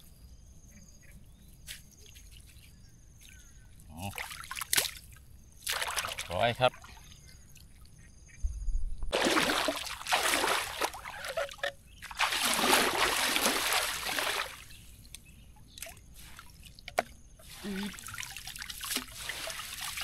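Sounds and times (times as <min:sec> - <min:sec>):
water sloshing and splashing: 0:04.1 - 0:08.0, 0:09.1 - 0:20.0.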